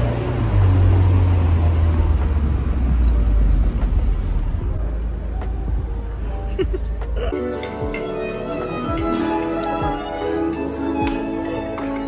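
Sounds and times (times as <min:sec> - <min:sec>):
car engine and tyre rumble: 0:00.0 - 0:07.2.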